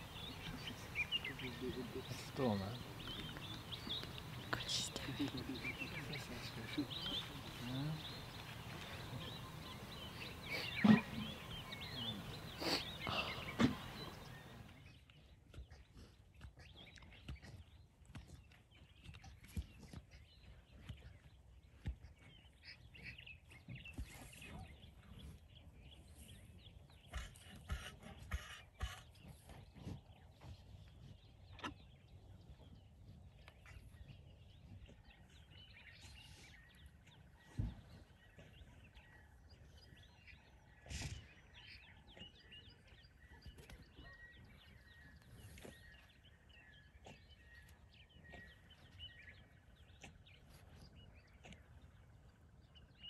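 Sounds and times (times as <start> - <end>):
faint bird chirps: 0.0 - 14.9, 33.6 - 52.0.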